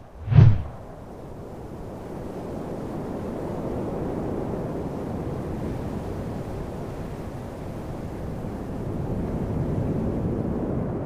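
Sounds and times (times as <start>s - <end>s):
steady rushing noise: 0.0s - 0.9s.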